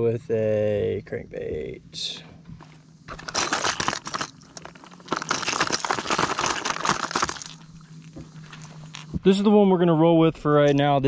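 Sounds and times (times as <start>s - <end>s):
lures rattling in plastic tray: 3.1s - 7.6s.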